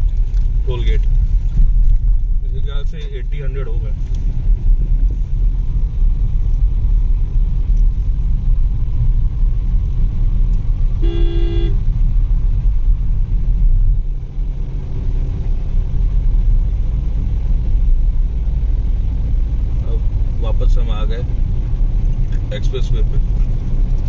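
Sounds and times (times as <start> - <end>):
car road noise rumble: 0.0 - 24.0
vehicle horn honk: 11.0 - 11.8.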